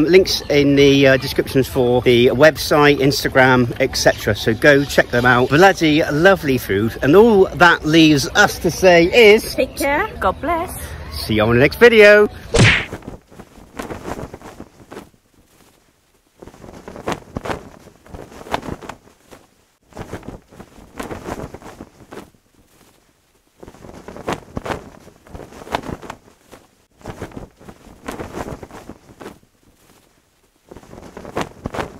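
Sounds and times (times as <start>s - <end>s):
cloth flag flapping in wind: 12.0s - 31.9s.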